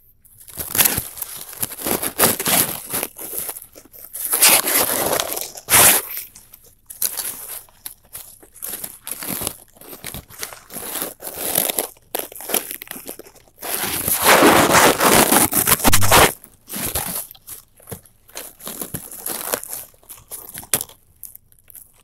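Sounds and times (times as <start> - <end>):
phone microphone handling noise: 15.8 - 16.3.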